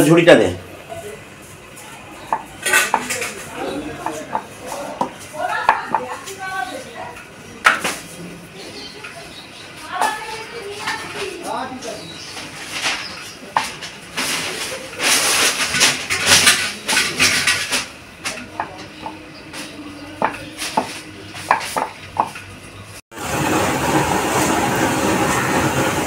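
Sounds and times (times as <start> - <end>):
rolling pin on wooden board: 20.2 - 22.4
dough frying in hot oil: 20.3 - 26.0.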